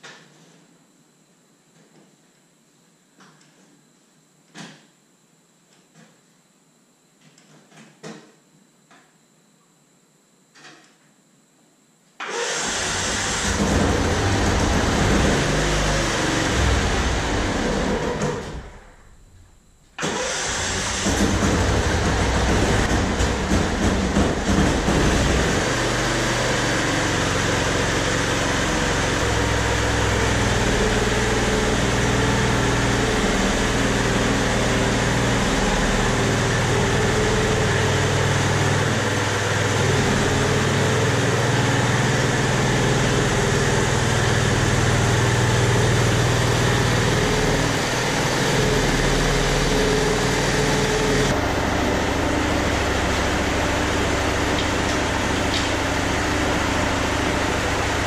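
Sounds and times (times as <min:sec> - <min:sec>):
engine running: 0:12.2 - 0:58.0.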